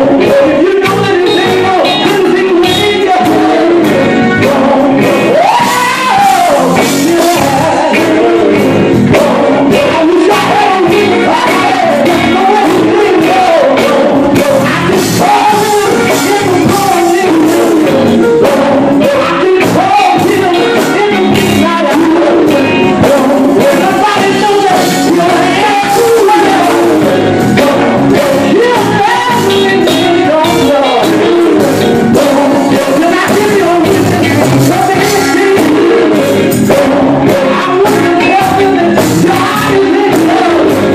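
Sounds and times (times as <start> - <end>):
band accompaniment: 0.0 - 40.9
male vocal group singing: 0.0 - 40.9.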